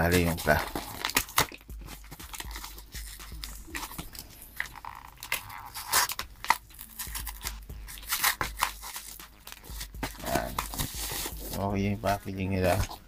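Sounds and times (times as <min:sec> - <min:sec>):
cardboard box being torn open: 0:00.0 - 0:01.6, 0:04.6 - 0:11.6
plastic wrapping crinkling: 0:00.0 - 0:13.0.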